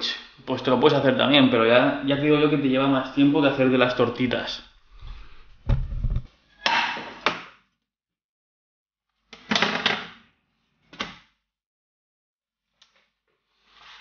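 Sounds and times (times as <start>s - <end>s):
camera set down with thud: 5.7s - 6.2s.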